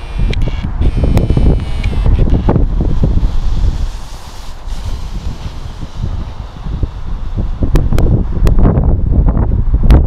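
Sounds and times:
sharp clicks: 0.0 - 2.6
wind buffeting microphone: 0.0 - 10.0.

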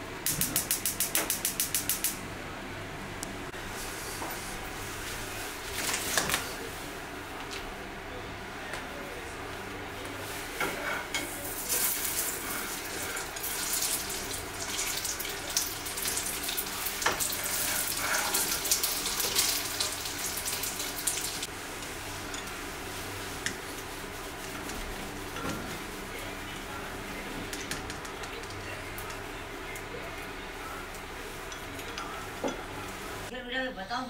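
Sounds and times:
food sizzling in hot oil: 11.0 - 24.2.

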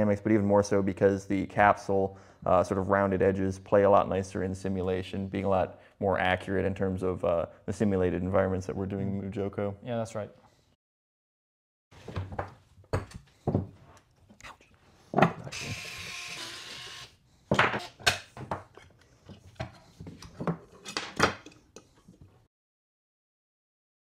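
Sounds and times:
plastic parts clicking and knocking: 17.5 - 22.2.

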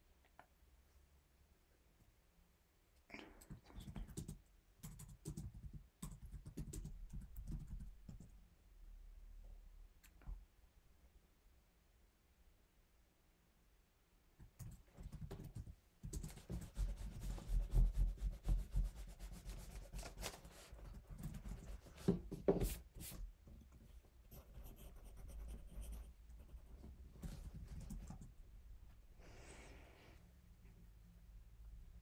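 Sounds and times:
pencil scratching on paper: 16.1 - 23.2, 24.3 - 27.5.

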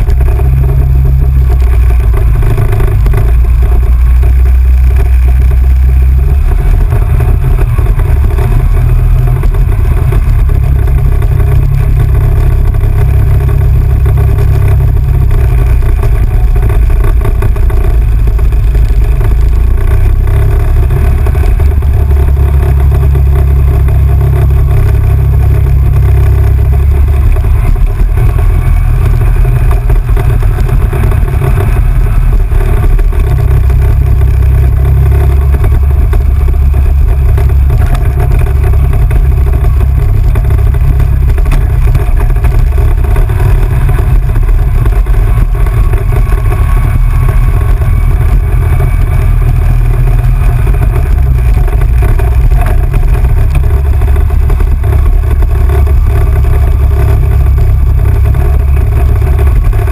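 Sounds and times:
atv engine rumbling: 0.0 - 59.9.

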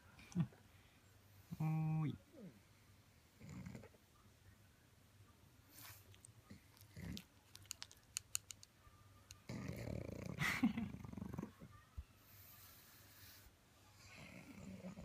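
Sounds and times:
dog breathing and mouth noises: 5.7 - 8.7.

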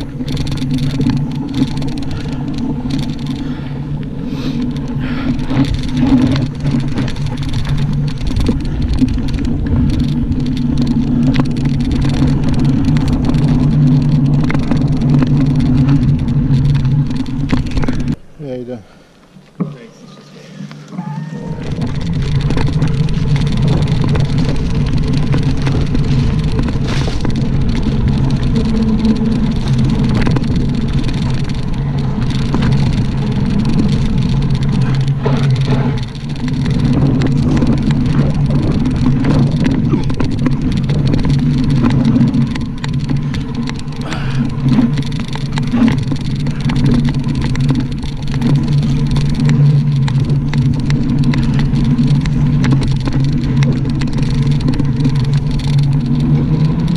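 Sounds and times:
wind on microphone: 0.0 - 18.2, 20.9 - 56.9
bike knocking and rattling: 0.0 - 19.8, 20.8 - 56.9
bike tyres rumbling: 0.0 - 56.9.

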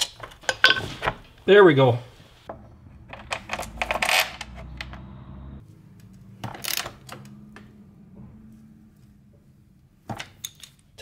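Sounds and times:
metal hardware clinking: 2.6 - 5.0, 10.1 - 11.0.

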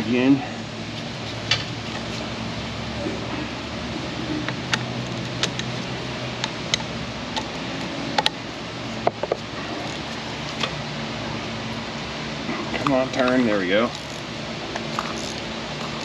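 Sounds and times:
steady low hum: 0.0 - 16.0
ratchet clicking: 13.9 - 16.0.

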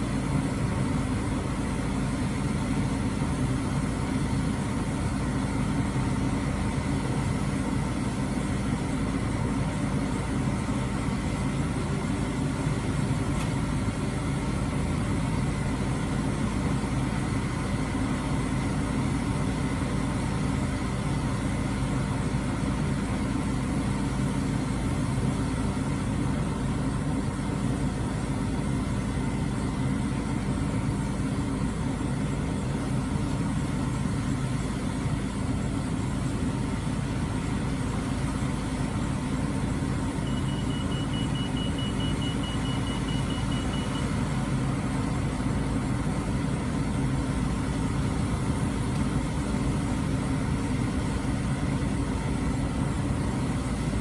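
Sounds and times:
diesel truck engine running: 0.0 - 54.0
high beeping: 40.2 - 44.3.

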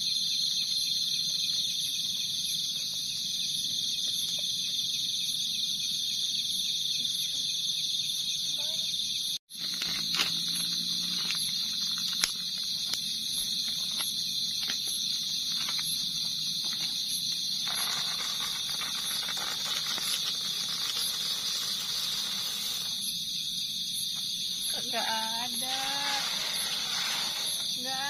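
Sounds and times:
insects trilling: 0.0 - 28.0
campfire crackling: 9.5 - 15.7, 17.7 - 23.0.

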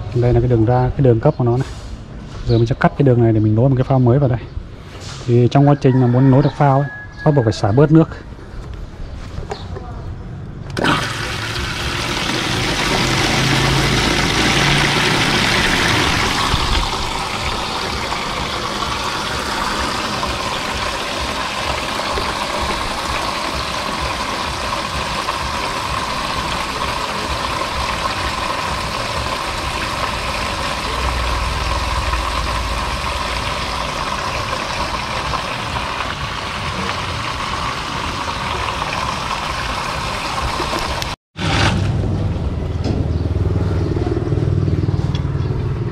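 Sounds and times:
water pouring onto concrete: 10.8 - 41.7.

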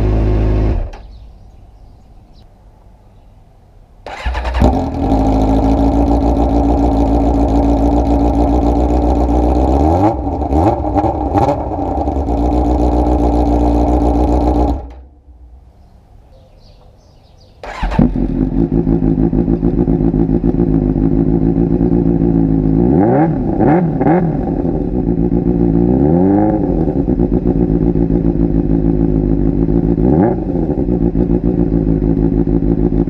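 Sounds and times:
motorcycle throttle blips and revs: 0.0 - 1.3, 4.1 - 15.1, 17.6 - 33.0
motorcycle engine idling: 4.1 - 15.1, 17.7 - 23.6, 24.4 - 33.0.

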